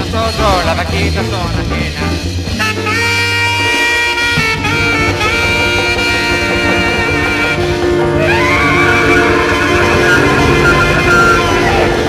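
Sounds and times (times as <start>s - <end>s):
latin jazz band: 0.0s - 12.0s
tenor saxophone long notes: 2.5s - 12.0s.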